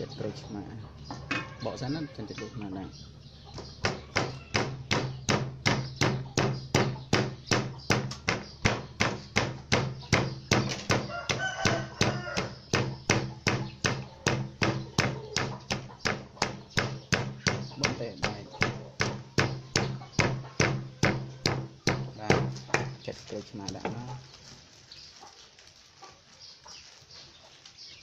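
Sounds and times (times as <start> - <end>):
wooden pestle pounding in mortar: 3.6 - 23.0.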